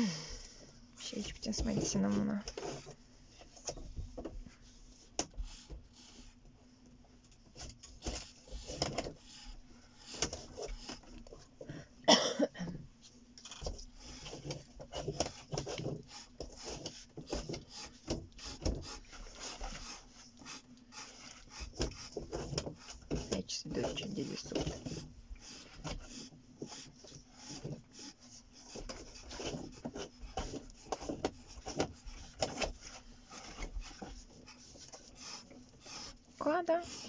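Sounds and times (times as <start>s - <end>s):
pencil scratching on paper: 14.0s - 37.0s.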